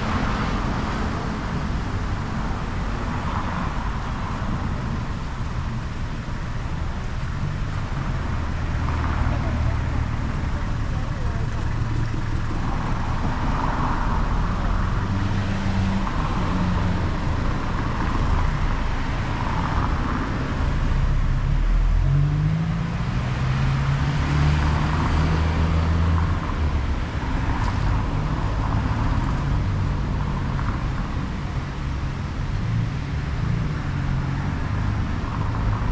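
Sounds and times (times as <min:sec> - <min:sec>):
road noise: 0:00.0 - 0:35.9
vehicle engines passing: 0:00.0 - 0:35.9.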